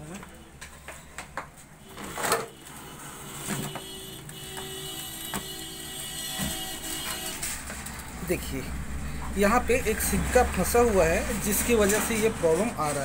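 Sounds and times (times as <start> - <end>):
printer motor hum and whine: 1.9 - 7.8.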